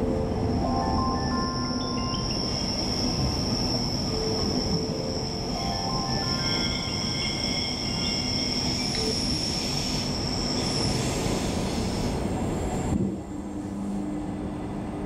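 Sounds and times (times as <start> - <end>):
train wheels rumbling on track: 0.0 - 15.0
high wheel squeal: 1.6 - 11.9.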